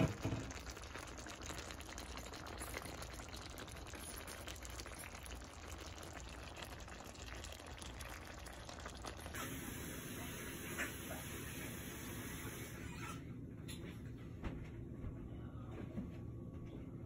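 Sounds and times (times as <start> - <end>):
sauce bubbling and crackling: 0.0 - 11.6.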